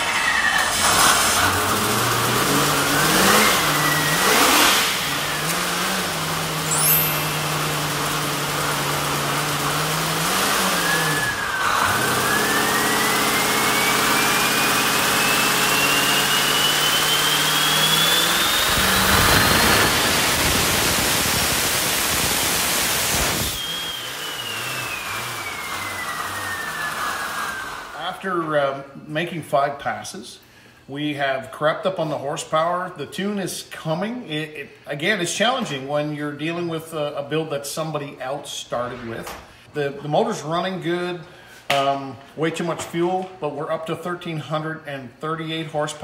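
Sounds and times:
engine revving on dyno: 0.0s - 28.0s
turbo whine: 0.0s - 28.0s
engine lumpy idle: 5.0s - 11.1s.

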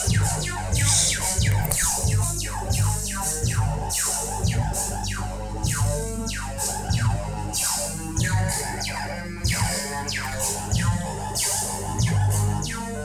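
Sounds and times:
zapping synth sweeps: 0.0s - 2.6s
repeating low bass notes: 0.0s - 6.3s.

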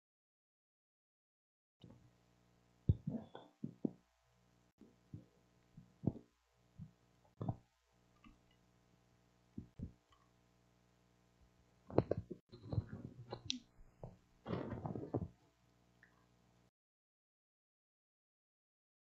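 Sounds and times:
electrical hum: 1.9s - 15.4s
soft thumps and knocks: 2.9s - 4.0s, 11.9s - 15.4s.

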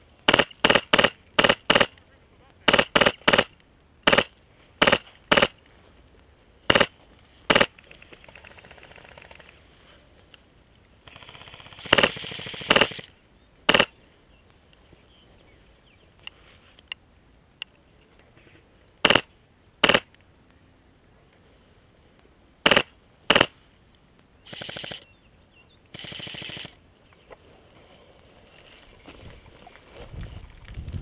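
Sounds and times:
airsoft gun single shots: 0.3s - 1.9s, 2.7s - 5.6s, 6.7s - 6.9s, 7.5s - 7.7s, 11.8s - 13.1s, 13.7s - 13.9s, 19.0s - 20.1s, 22.6s - 23.5s
full-auto airsoft gun rattle: 7.5s - 9.6s, 11.0s - 13.1s, 24.5s - 25.0s, 25.9s - 26.8s.

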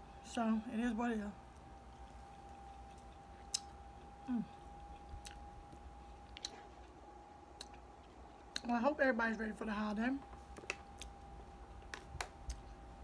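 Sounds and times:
faint steady high tone: 0.0s - 6.4s
chewing food: 1.4s - 8.8s, 9.9s - 12.8s
wet mouth clicks: 3.4s - 3.8s, 7.6s - 7.8s
low falling voice hum: 3.6s - 5.8s.

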